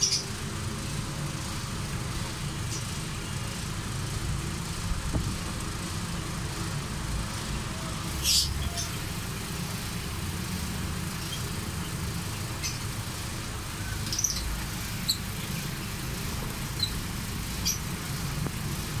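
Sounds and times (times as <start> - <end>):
lovebirds chirping: 0.0 - 0.3, 8.1 - 9.9, 11.0 - 18.4.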